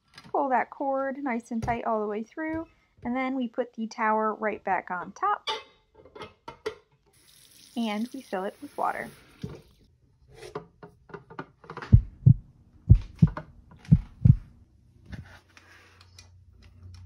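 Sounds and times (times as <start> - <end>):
heavy footsteps: 11.9 - 14.5.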